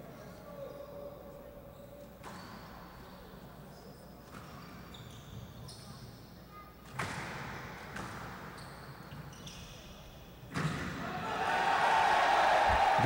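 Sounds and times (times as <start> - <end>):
shoes squeaking on court: 1.7 - 6.0, 8.0 - 9.9
crowd noise: 11.1 - 13.0.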